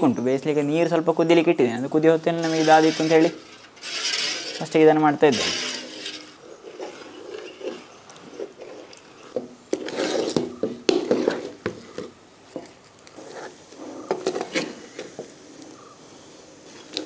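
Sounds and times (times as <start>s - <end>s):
metal spatula scraping pan: 2.2s - 11.6s.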